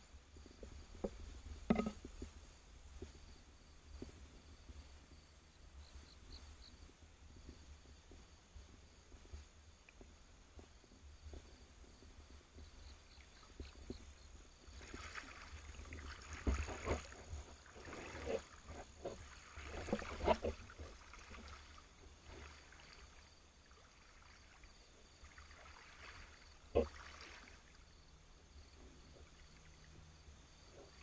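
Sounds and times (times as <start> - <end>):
sharp knocks: 1.7 - 2.0
water sloshing and splashing: 13.5 - 28.0.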